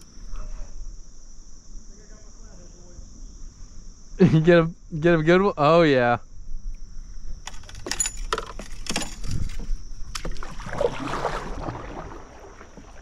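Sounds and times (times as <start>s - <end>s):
insects droning: 0.0s - 13.0s
water splash: 10.1s - 13.0s.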